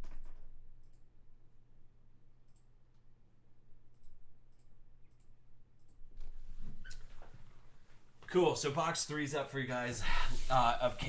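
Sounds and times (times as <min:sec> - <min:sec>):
computer mouse clicking: 0:00.0 - 0:01.1, 0:02.5 - 0:03.0, 0:03.9 - 0:07.0.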